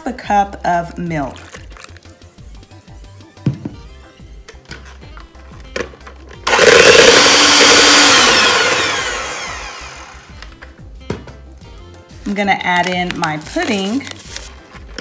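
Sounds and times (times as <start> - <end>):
electric hand mixer whining: 6.4 - 10.5.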